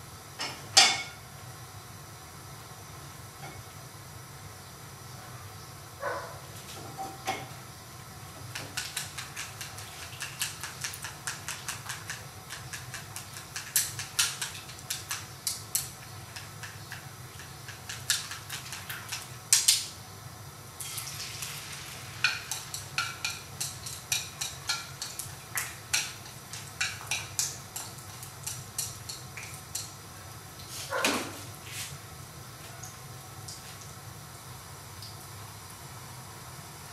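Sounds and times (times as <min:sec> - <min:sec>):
chopsticks clicking against bowl: 0:08.5 - 0:19.8, 0:22.5 - 0:29.9.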